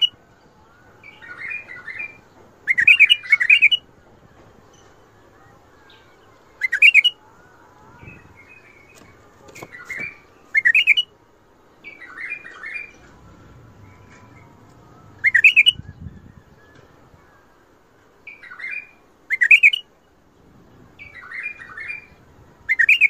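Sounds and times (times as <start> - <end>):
bulbul singing warbled phrases: 1.0 - 3.9, 5.2 - 11.1, 11.8 - 16.6, 18.3 - 20.0, 21.0 - 23.0.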